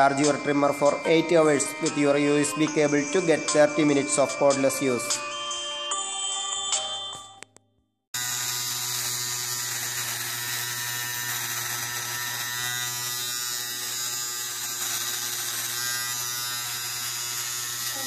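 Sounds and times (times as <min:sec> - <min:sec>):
beard trimmer buzzing: 0:08.2 - 0:18.0.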